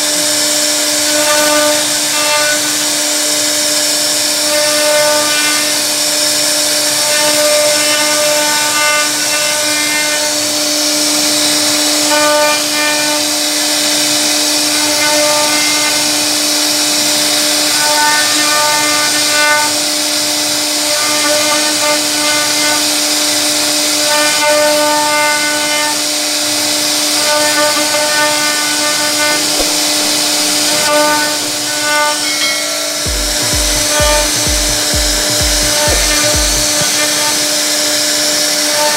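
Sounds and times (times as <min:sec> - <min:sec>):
router spindle whine: 0:00.0 - 0:38.9
higher whir: 0:25.9 - 0:38.9
low pulsing: 0:32.4 - 0:37.6.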